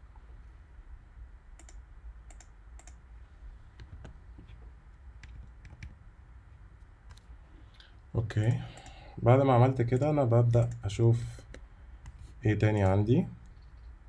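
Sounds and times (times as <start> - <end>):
low steady hum: 0.0 - 14.0
computer keys clicking: 1.6 - 3.0, 5.2 - 6.0, 9.9 - 10.9.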